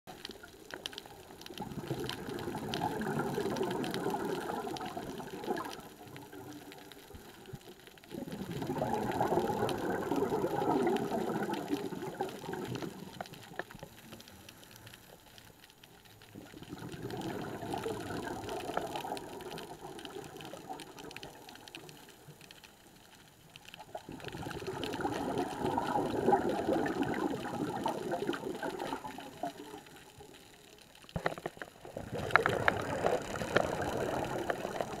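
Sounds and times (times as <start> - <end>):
regulator exhalation bubbles: 31.8 - 35.0.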